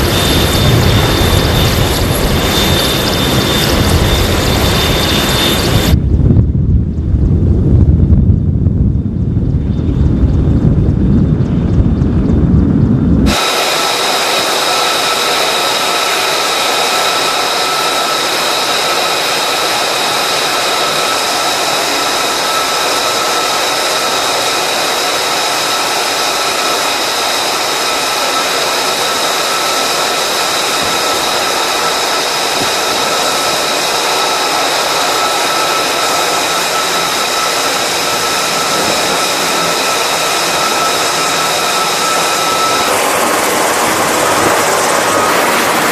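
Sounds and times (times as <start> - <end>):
wind rumble on microphone: 0.0 - 13.4, 29.9 - 45.9
jet turbine engine running: 0.0 - 45.9.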